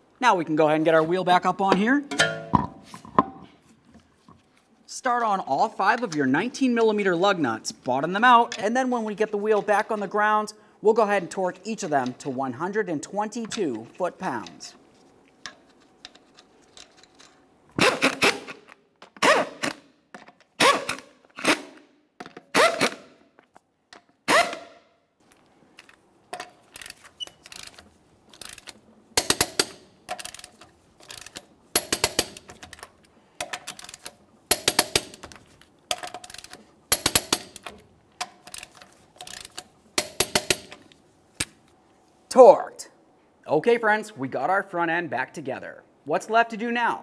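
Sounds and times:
torque wrench ratcheting clicks: 26.8 - 32.8, 38.5 - 40.7.

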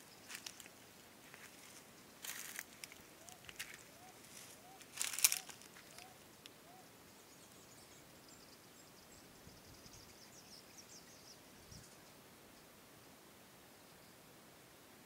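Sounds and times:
dry twigs crackling: 0.2 - 6.5
thin high chirping: 1.6 - 6.2.

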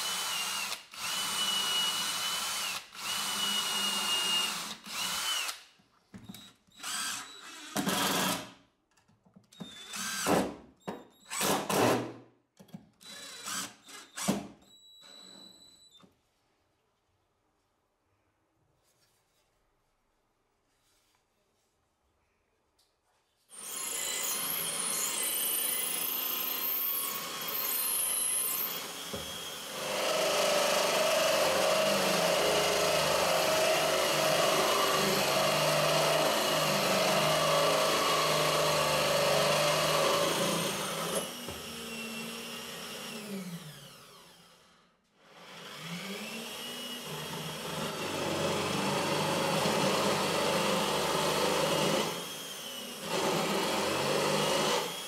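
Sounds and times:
drill press boring into wood: 0.0 - 5.6, 6.4 - 8.4, 9.6 - 10.4, 13.0 - 14.5, 23.6 - 44.6, 45.4 - 55.0.

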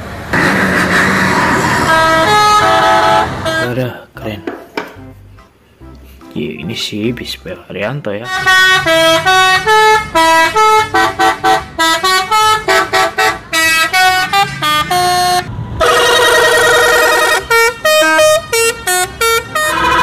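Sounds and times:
musical air horns playing tune: 0.3 - 4.0, 8.2 - 20.0.

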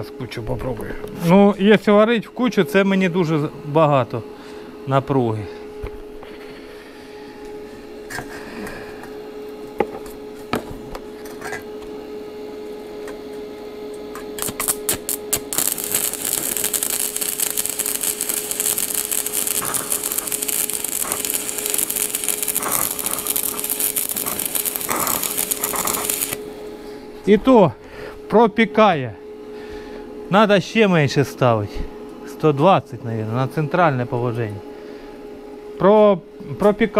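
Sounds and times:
steady hum: 0.0 - 36.9
welding arc crackling: 14.1 - 26.6
electrode sputtering: 14.4 - 26.4.

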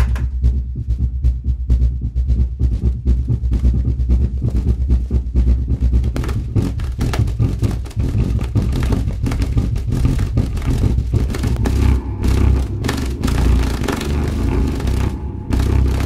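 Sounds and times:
loudspeaker bass hum: 3.3 - 16.0.

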